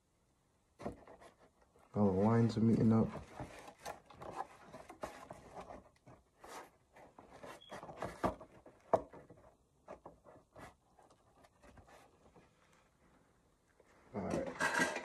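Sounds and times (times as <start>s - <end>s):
plastic helmet rubbing and tapping: 0.8s - 12.5s.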